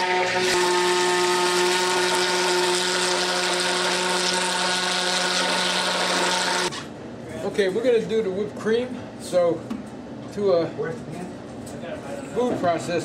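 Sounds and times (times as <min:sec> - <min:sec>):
immersion blender motor whine: 0:00.0 - 0:06.9.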